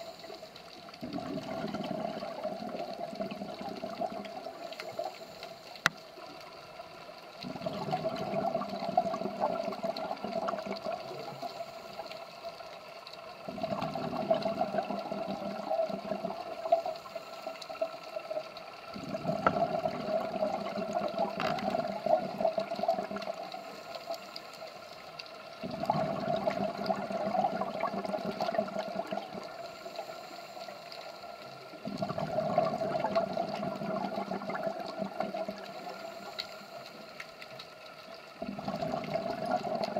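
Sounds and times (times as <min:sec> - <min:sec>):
diver exhaling bubbles: 0:01.0 - 0:04.8, 0:07.4 - 0:11.0, 0:13.5 - 0:16.6, 0:19.0 - 0:23.5, 0:25.6 - 0:29.6, 0:31.8 - 0:36.2, 0:38.4 - 0:39.9.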